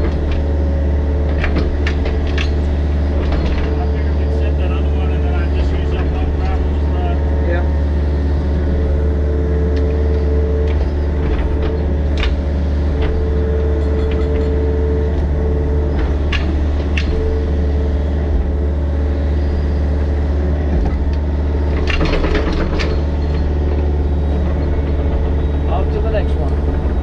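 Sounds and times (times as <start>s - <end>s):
diesel engine running: 0.0s - 27.0s
hydraulic whine: 0.0s - 27.0s.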